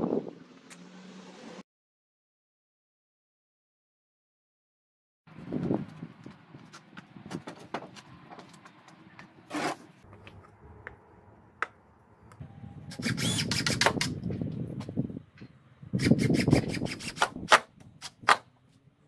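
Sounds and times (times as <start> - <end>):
power drill boring into wood: 12.9 - 14.1.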